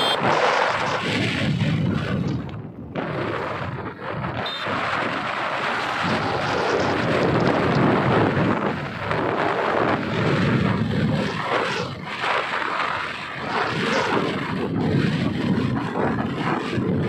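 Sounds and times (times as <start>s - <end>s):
scooter engine: 0.0s - 1.0s
road noise: 0.0s - 16.3s
wind buffeting microphone: 0.0s - 17.0s.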